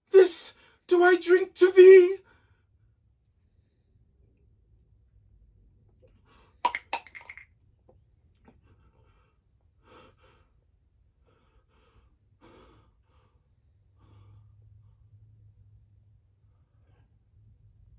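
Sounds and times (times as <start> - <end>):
pill bottle clattering on concrete: 6.7 - 7.4
man breathing heavily and gasping: 11.3 - 14.5.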